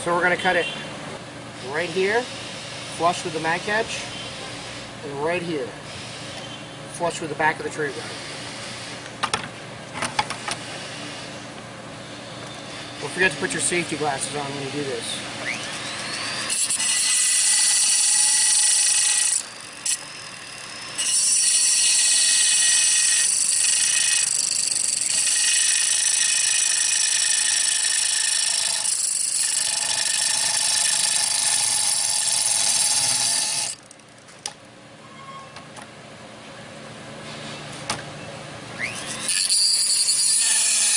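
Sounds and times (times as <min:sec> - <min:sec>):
rotary tool cutting steel whine: 0:12.7 - 0:34.2, 0:38.8 - 0:40.9.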